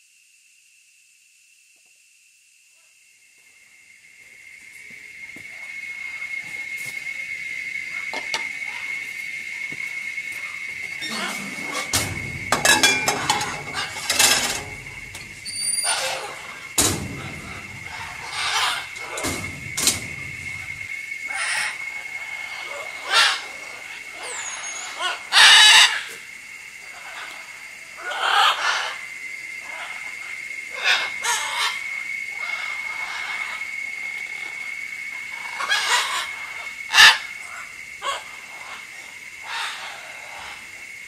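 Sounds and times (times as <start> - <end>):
high-pitched whine: 3.4 - 39.2
macaws squawking: 10.4 - 26.2, 26.9 - 40.7.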